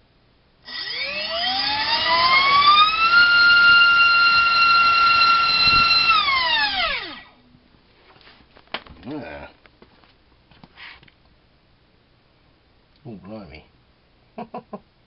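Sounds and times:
electric motor and propeller whine: 0.7s - 7.4s.

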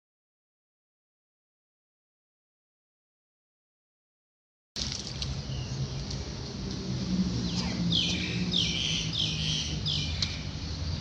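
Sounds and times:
bird calling: 7.5s - 10.5s.

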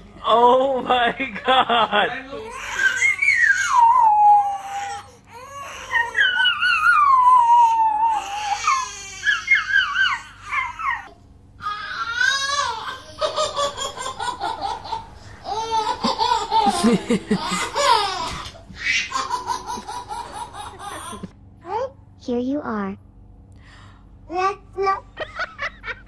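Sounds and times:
baby crying: 2.4s - 21.3s.

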